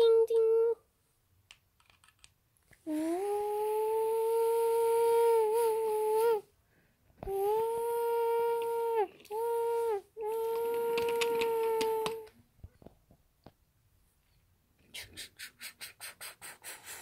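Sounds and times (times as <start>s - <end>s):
person hooting like a train whistle: 3.0s - 6.4s, 7.3s - 12.1s.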